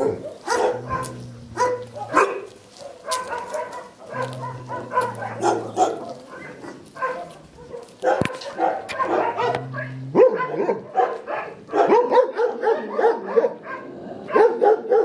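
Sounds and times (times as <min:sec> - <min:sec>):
dogs barking: 0:00.0 - 0:15.0.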